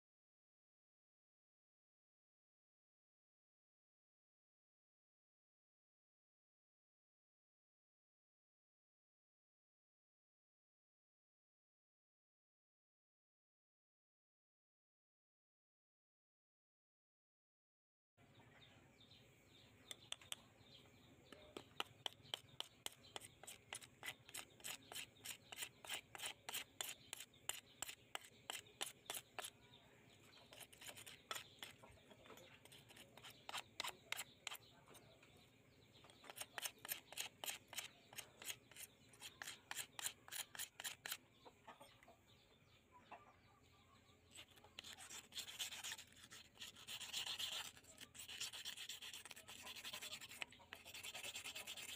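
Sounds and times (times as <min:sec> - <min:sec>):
knife blade scraping on stone: 0:21.6 - 0:29.6, 0:30.4 - 0:34.7, 0:36.1 - 0:41.2, 0:44.4 - 0:51.9.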